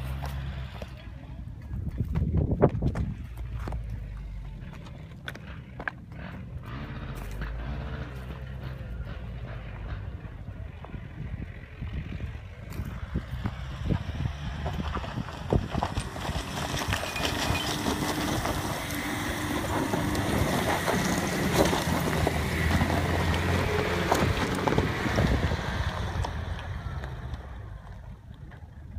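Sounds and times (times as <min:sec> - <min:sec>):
diesel engine under load: 0:00.0 - 0:28.9
stones crunching under tyres: 0:01.6 - 0:09.0, 0:12.2 - 0:28.9.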